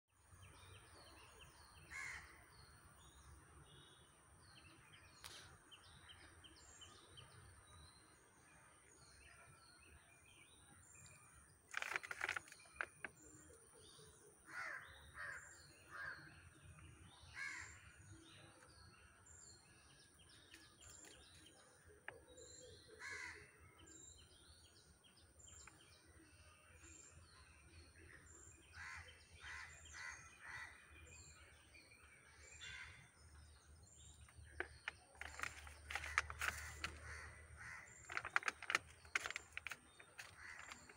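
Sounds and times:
small birds chirping: 0.2s - 40.9s
crows cawing: 1.9s - 2.4s, 14.5s - 16.3s, 17.4s - 17.8s, 23.0s - 23.5s.

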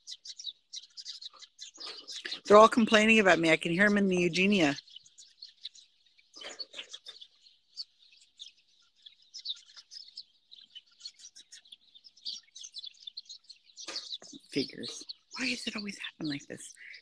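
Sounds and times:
songbirds chirping rapidly: 0.0s - 17.0s.

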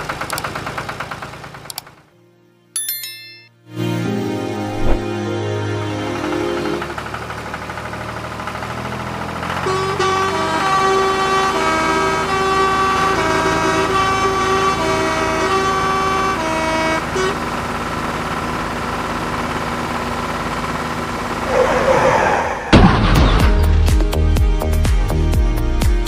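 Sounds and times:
engine-like drone: 4.5s - 23.8s
musical truck horn tune: 9.4s - 18.1s.

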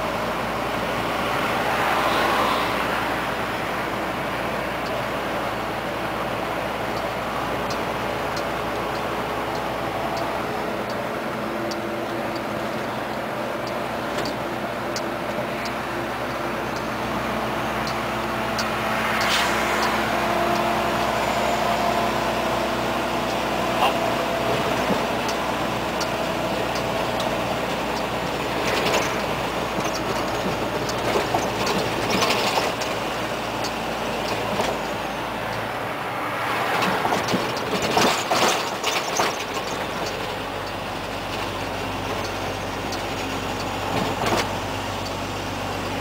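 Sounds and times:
road and wind noise: 0.0s - 46.0s
truck diesel engine running: 0.0s - 46.0s
cab rattles and knocks: 36.8s - 40.2s.

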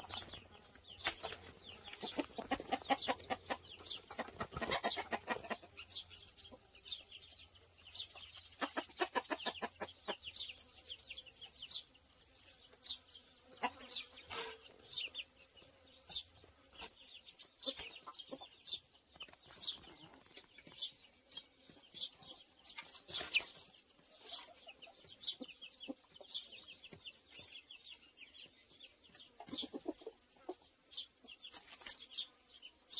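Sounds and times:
chicken clucking: 0.0s - 11.8s, 13.5s - 14.2s, 16.1s - 32.0s
small birds chirping: 0.0s - 32.9s.

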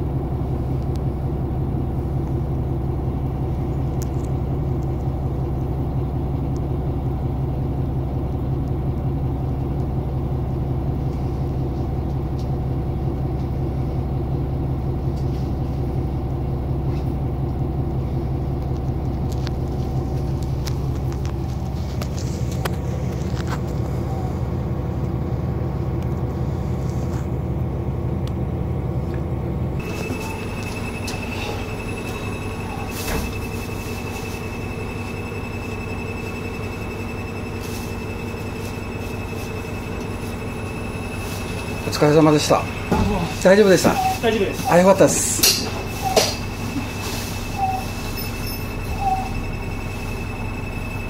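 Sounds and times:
diesel engine idling: 0.0s - 51.0s
steady high tone: 29.8s - 51.0s.

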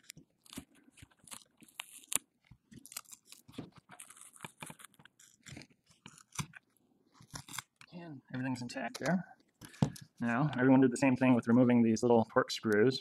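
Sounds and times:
plastic cover crackling and clicking: 0.0s - 7.9s.

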